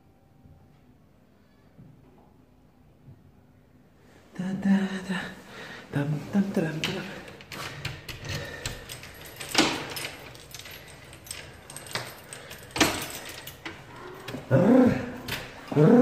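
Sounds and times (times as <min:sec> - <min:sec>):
keys jangling in a door lock: 0:06.1 - 0:16.0.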